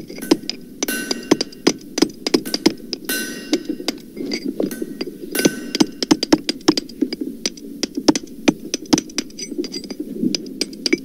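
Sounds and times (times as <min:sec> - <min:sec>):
deep hammer blows: 0:00.2 - 0:06.6.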